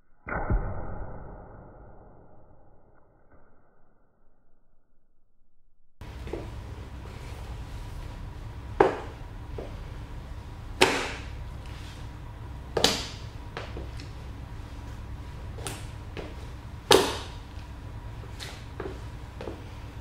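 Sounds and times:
boot heels stamping on tile: 8.8 - 9.8, 15.6 - 17.4, 18.4 - 19.7.

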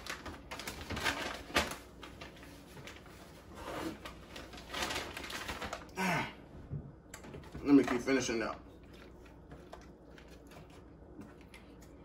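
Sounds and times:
paper bag crinkling: 0.0 - 6.0.

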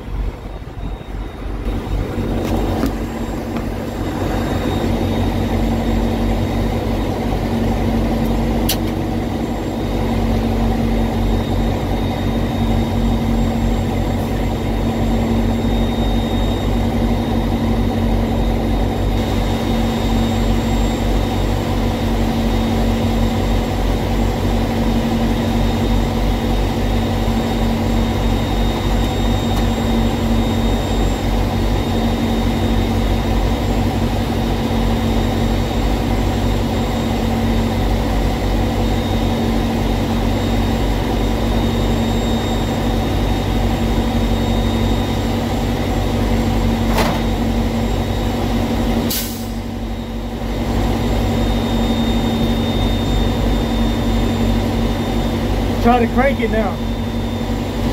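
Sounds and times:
diesel engine idling: 0.0 - 52.6
sharp click: 8.2 - 9.0.

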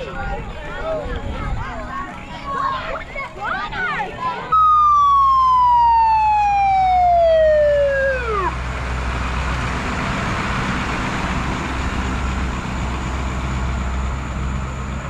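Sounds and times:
truck engine rumble: 0.0 - 15.0
fire engine siren winding down: 4.5 - 9.5.

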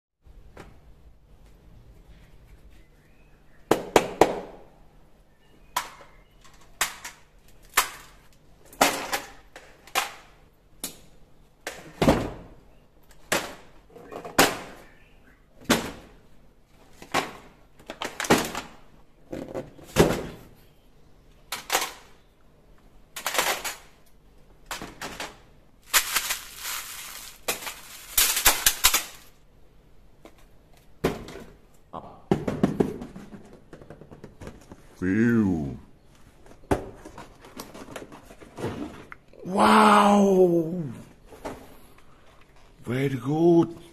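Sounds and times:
thunks and plastic clatters: 11.7 - 12.6, 13.2 - 14.9, 16.8 - 20.6, 31.0 - 31.6, 32.3 - 35.0, 36.4 - 39.2
small plastic bags crinkling: 25.8 - 29.4.

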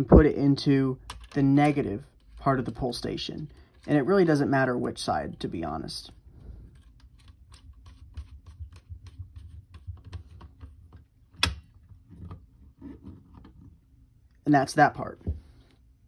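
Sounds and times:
screwdriver clicking and scraping: 1.1 - 2.8, 6.7 - 12.4.

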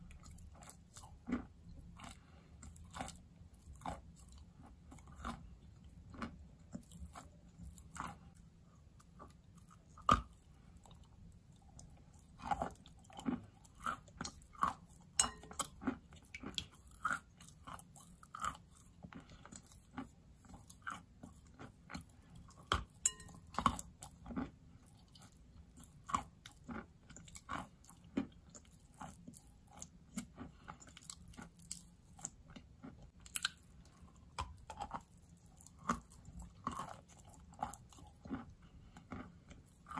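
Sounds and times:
person chewing: 0.0 - 39.9.

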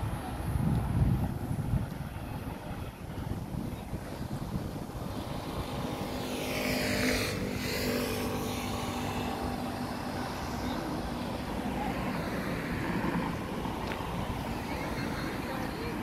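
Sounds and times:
wind on microphone: 0.0 - 16.0
vehicle passing by: 4.1 - 16.0.

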